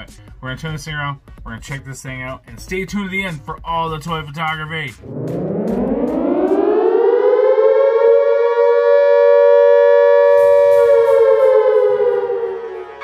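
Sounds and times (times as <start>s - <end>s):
air-raid siren wailing: 5.0s - 13.0s.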